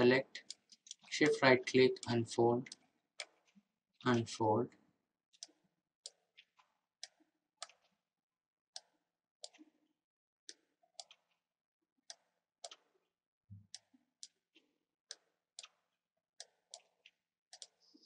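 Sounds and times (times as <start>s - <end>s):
computer mouse clicks: 0.0s - 4.3s, 5.4s - 8.0s, 10.5s - 11.4s, 12.1s - 12.9s, 13.6s - 14.4s, 15.1s - 18.0s.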